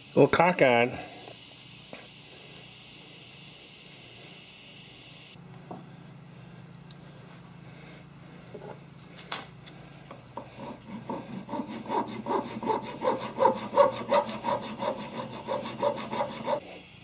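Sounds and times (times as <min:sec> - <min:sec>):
hand file rasping on metal: 0:10.4 - 0:16.7.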